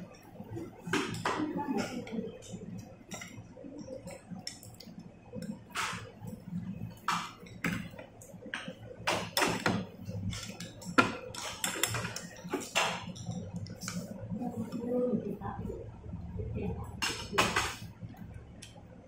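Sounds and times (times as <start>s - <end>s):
cutlery clinking on ceramic bowls: 8.6s - 13.4s.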